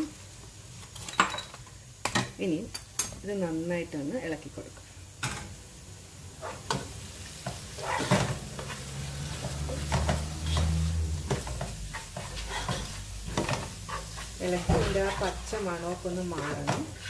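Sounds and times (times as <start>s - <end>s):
food sizzling in oil: 3.4s - 17.0s
metal spoon scraping a pot: 7.8s - 17.0s.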